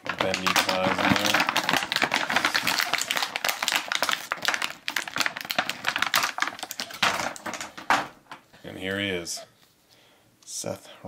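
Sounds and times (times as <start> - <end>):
plastic packaging crinkling: 0.0 - 8.2.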